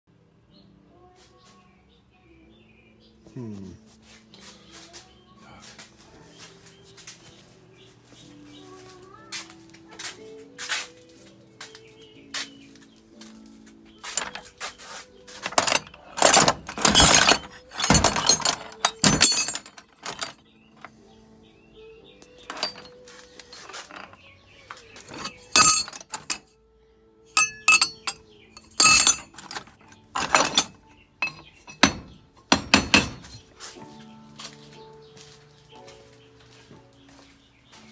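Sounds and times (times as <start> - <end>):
metal scraps clanking: 14.0 - 20.9, 22.3 - 24.2, 24.9 - 26.4, 27.4 - 33.5.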